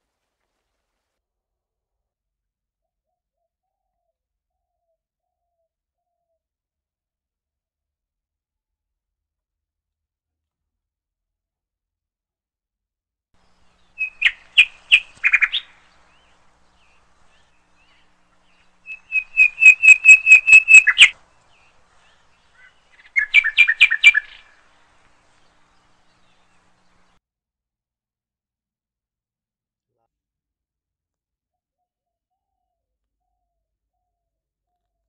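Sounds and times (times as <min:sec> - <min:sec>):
songbird chirping: 0:13.4 - 0:27.2.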